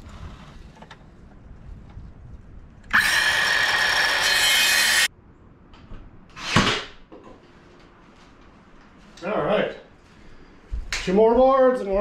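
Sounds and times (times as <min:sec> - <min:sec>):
circular saw cutting wood: 0:02.9 - 0:05.1.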